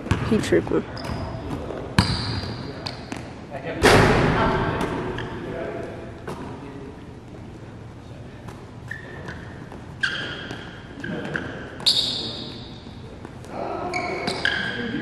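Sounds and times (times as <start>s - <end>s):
faint thuds in echoing hall: 3.8s - 5.5s.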